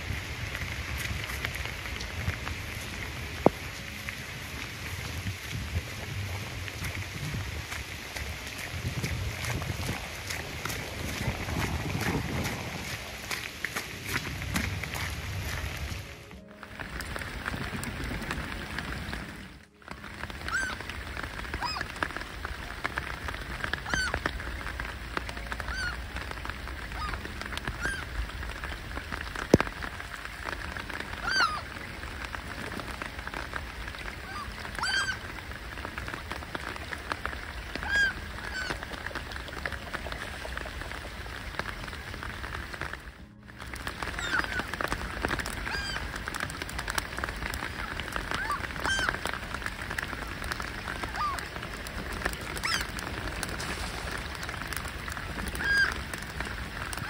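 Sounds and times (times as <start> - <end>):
rain falling on water: 0.0 - 57.0
ducks quacking: 20.4 - 20.9, 23.7 - 24.3, 26.9 - 28.1, 31.2 - 31.8, 34.2 - 35.3, 37.6 - 41.5, 44.0 - 46.4, 47.5 - 49.4, 50.2 - 51.6, 54.0 - 56.3.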